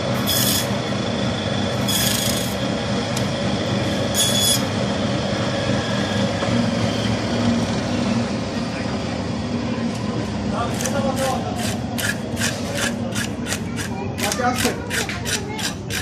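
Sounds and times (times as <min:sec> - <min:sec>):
band saw humming: 0:00.0 - 0:08.2
saw blade screeching through fish: 0:00.2 - 0:00.8, 0:01.9 - 0:02.6, 0:04.1 - 0:04.7.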